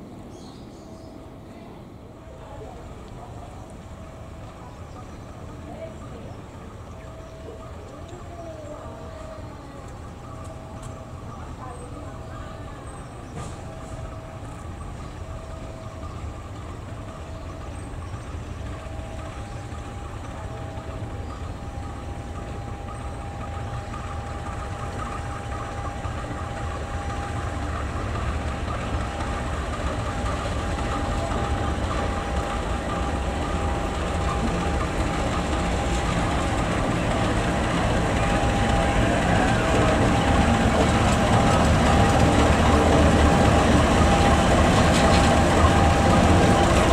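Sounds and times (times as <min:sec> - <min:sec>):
diesel locomotive engine passing: 0:00.0 - 0:46.9
steady high whine: 0:12.9 - 0:46.9.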